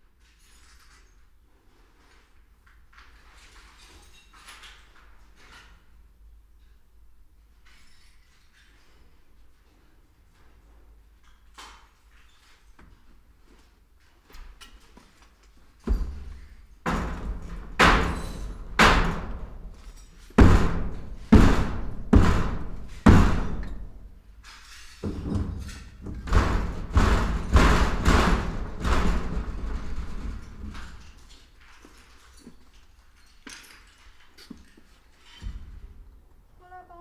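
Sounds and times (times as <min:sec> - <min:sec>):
heavy echoing thuds: 0:20.4 - 0:23.9.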